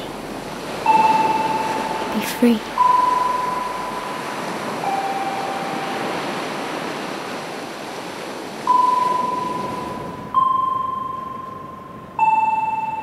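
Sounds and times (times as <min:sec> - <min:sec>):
surf washing onto shore: 0:00.0 - 0:11.2
ringing tones: 0:00.8 - 0:06.4, 0:08.7 - 0:13.0.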